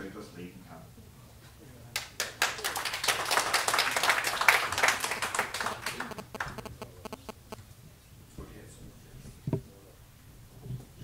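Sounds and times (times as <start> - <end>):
audience applauding: 2.2 - 6.6.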